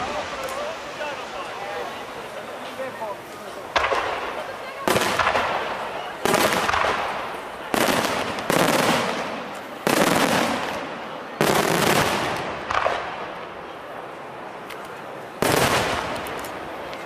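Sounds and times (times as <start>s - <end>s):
faint cracks: 14.6s - 15.1s, 15.8s - 17.0s.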